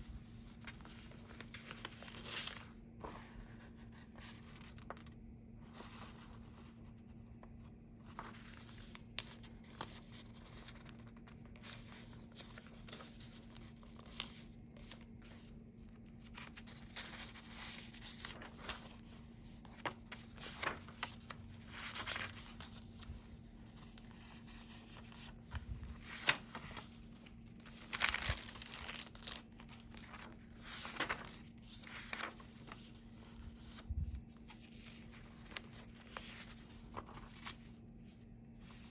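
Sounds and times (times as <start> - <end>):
paper pages rustling: 0.3 - 38.9.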